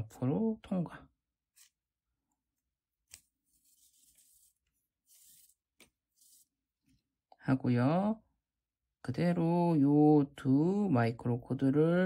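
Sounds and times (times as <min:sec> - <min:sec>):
cord rubbing through weave: 0:03.0 - 0:06.7.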